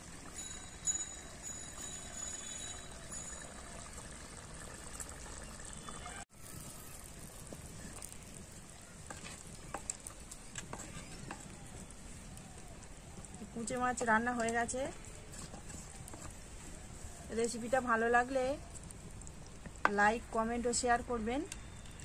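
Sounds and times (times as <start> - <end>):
spatula stirring thick curry: 6.5 - 20.0
spatula knocking and scraping pot: 9.0 - 11.9, 13.9 - 16.8.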